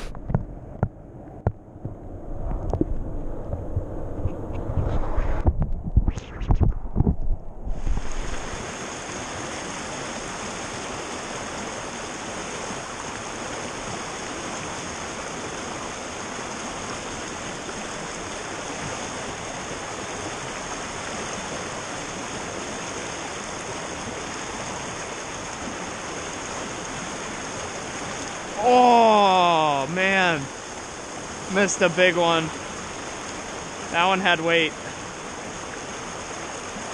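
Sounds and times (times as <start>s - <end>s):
creek water rushing over rocks: 7.7s - 36.9s.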